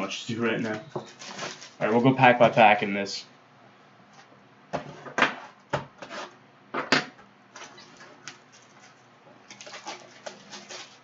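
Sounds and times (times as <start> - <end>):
cardboard box handling noises: 0.6 - 2.0.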